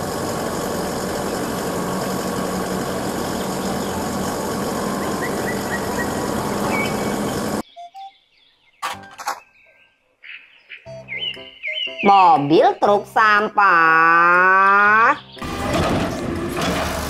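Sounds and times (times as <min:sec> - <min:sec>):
truck engine running: 0:00.0 - 0:07.6, 0:15.2 - 0:17.0.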